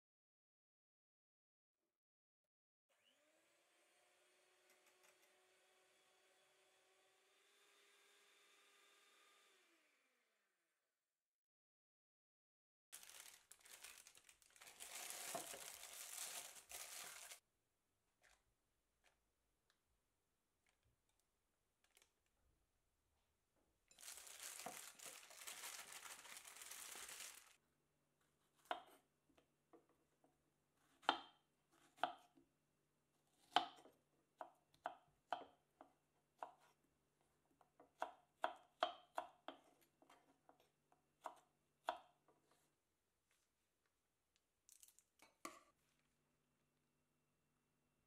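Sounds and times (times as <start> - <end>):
rustling noise: 13.0 - 17.4, 24.0 - 27.6.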